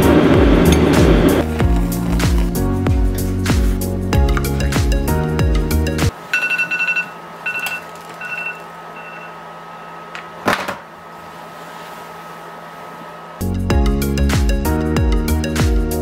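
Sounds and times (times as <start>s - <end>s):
background music: 0.0s - 6.1s, 13.4s - 16.0s
electronic alarm beeping: 6.4s - 10.1s.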